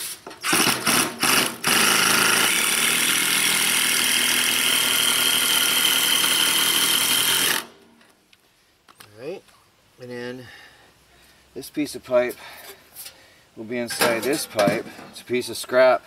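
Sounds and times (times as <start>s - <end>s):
cordless drill into sheet metal: 0.4s - 7.8s.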